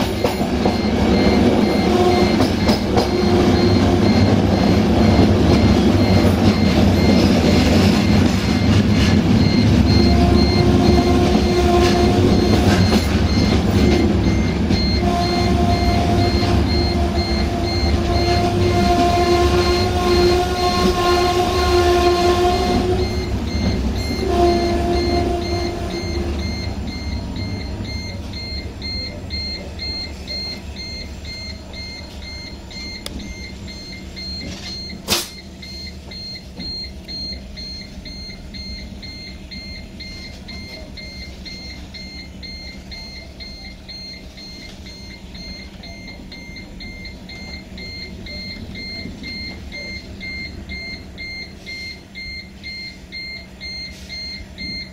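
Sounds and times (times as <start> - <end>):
high electronic beeping: 0.0 - 21.0, 22.6 - 54.9
train wheels rumbling on track: 0.0 - 54.9
train horn blasts: 1.7 - 4.6, 9.9 - 13.0, 14.7 - 26.5.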